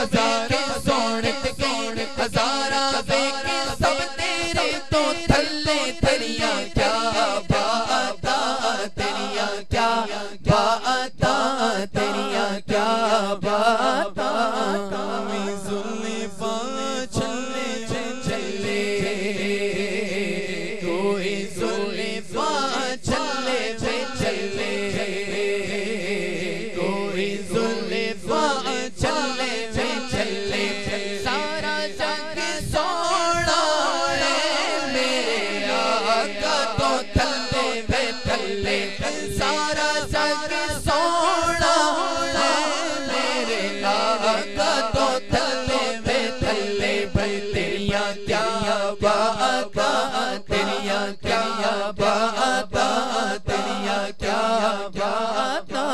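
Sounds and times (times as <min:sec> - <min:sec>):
men singing devotional song: 0:00.0 - 0:55.9.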